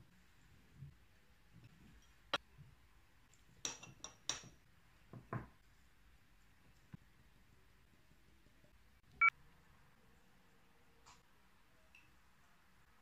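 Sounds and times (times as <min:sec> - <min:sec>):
clinks and taps on glass jar: 0:03.6 - 0:04.6.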